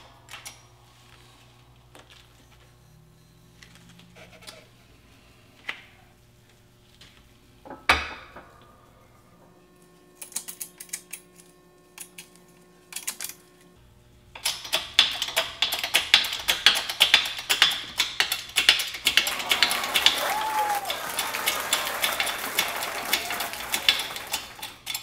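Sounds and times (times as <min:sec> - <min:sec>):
scattered clicks and taps: 0:14.4 - 0:25.0.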